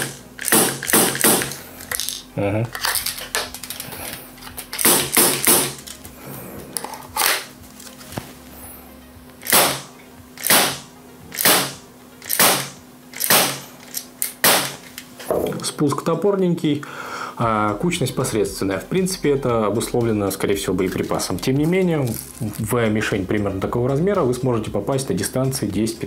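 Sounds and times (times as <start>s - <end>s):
air pistol shots: 0.0s - 1.6s, 4.8s - 5.8s, 9.4s - 14.9s.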